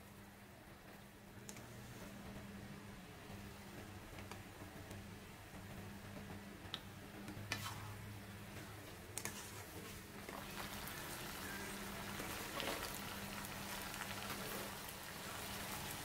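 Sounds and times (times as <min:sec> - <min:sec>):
low steady hum: 0:00.0 - 0:16.0
noodles sizzling in a wok: 0:09.2 - 0:16.0.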